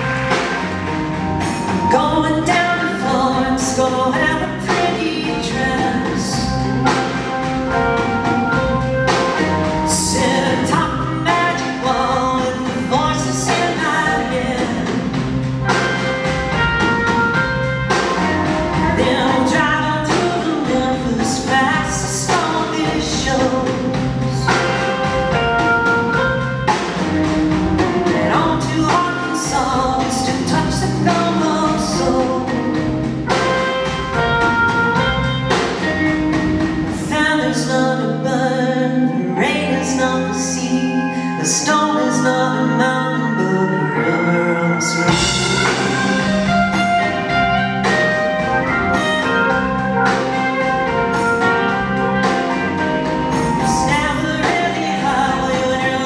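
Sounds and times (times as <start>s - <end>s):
drum kit beat: 0.0s - 37.3s, 44.8s - 56.0s
live band playing: 0.0s - 56.0s
woman singing: 1.8s - 7.2s, 9.3s - 16.0s, 18.7s - 26.2s, 27.8s - 33.6s, 36.9s - 48.0s, 53.4s - 56.0s.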